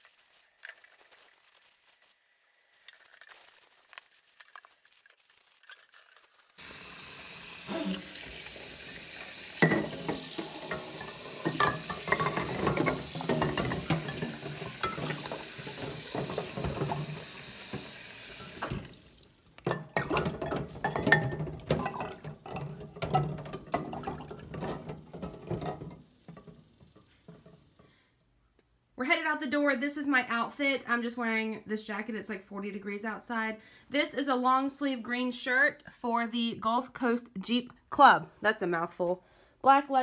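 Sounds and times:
tap running into sink: 0:06.6 - 0:19.0
ceramic mugs clinking: 0:09.6 - 0:17.1, 0:19.6 - 0:26.6.

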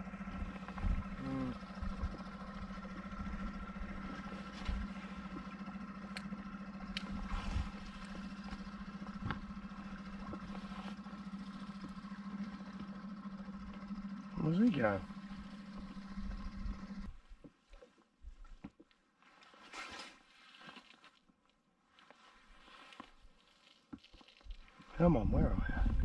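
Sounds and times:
outboard motor droning: 0:00.0 - 0:17.9, 0:24.9 - 0:26.0.

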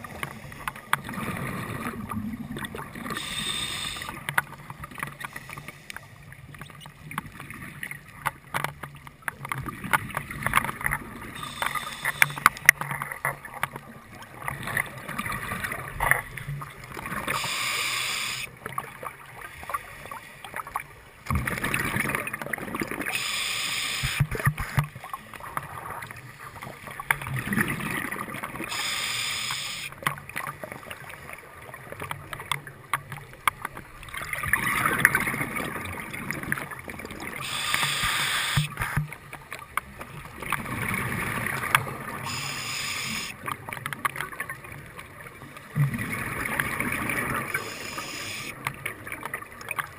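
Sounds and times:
dull underwater rush: 0:00.0 - 0:49.9
exhaled bubbles underwater: 0:00.9 - 0:05.0, 0:24.0 - 0:32.3, 0:33.9 - 0:39.2, 0:40.0 - 0:49.9.

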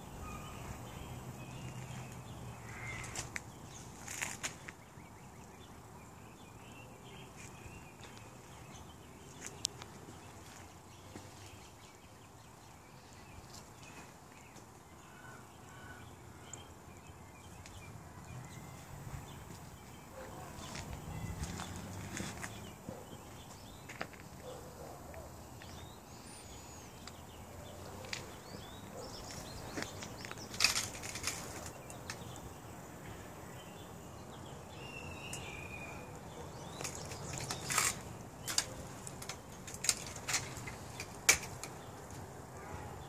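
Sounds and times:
footsteps on concrete: 0:02.9 - 0:04.8, 0:07.4 - 0:11.6, 0:18.8 - 0:25.9, 0:27.9 - 0:31.7.

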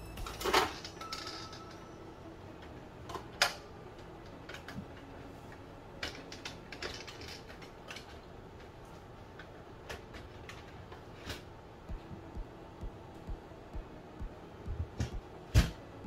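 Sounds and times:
plastic parts clicking: 0:06.0 - 0:08.3.

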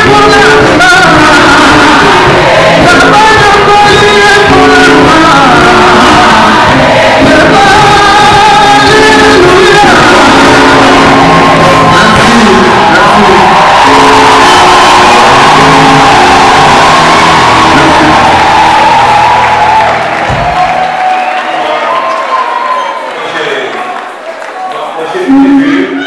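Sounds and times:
man singing into microphone: 0:00.0 - 0:19.5
live band accompaniment: 0:00.0 - 0:24.3.

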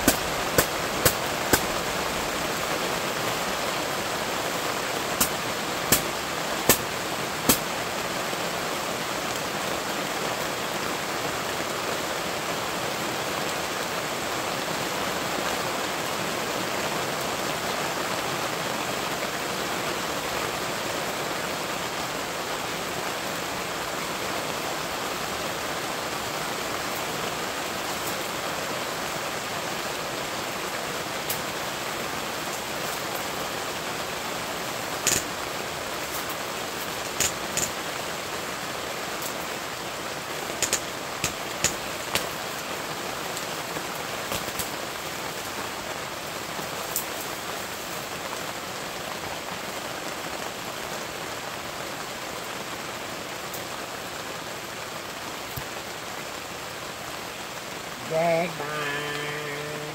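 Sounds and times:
rain on fabric canopy: 0:00.0 - 0:59.9
sharp ticks: 0:40.6 - 0:42.3.

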